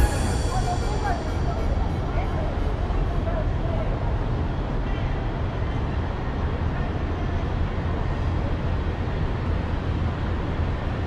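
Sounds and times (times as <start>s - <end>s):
train station concourse rumble: 0.0s - 11.0s.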